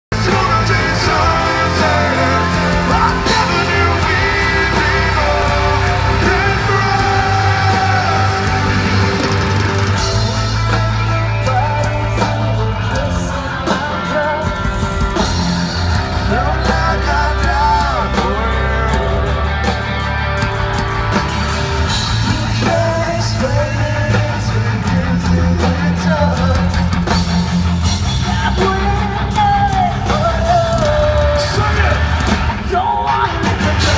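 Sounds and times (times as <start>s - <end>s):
drums: 0.0s - 33.9s
electric guitar: 0.1s - 33.9s
man and woman singing duet: 0.2s - 9.3s.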